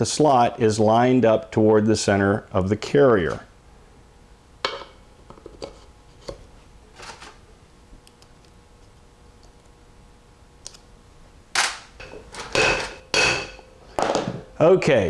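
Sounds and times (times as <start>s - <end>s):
sharp metal knocks: 12.0s - 14.3s.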